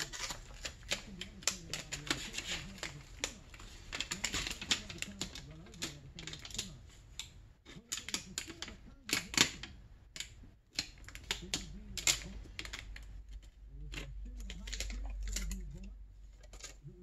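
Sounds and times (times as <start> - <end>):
paper liner peeling and crinkling: 0.0 - 9.6.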